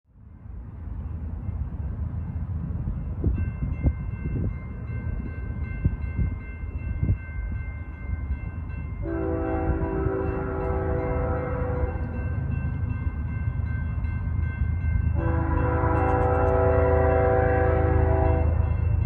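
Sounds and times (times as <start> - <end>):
train rumbling: 0.1 - 19.0
train horn chord: 9.0 - 12.3, 15.1 - 18.9.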